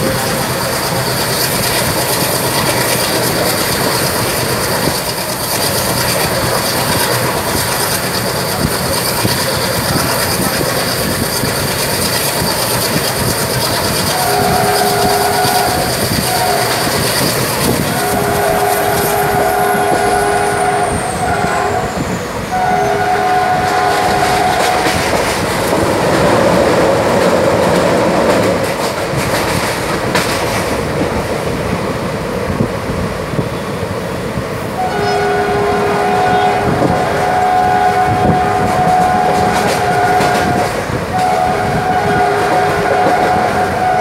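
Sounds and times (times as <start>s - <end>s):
train wheels rumbling on rails: 0.0s - 44.0s
multi-tone train horn blasts: 13.2s - 25.4s, 34.7s - 44.0s.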